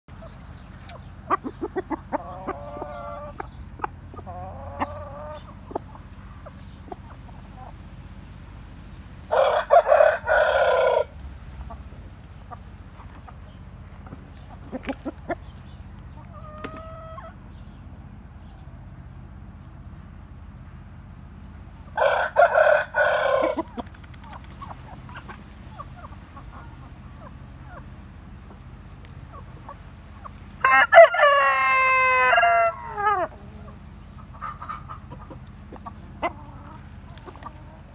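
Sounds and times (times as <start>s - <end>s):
soft clucking calls: 0.1s - 17.7s, 22.0s - 37.9s
rooster crowing: 9.3s - 11.2s, 22.0s - 23.8s, 30.6s - 33.7s.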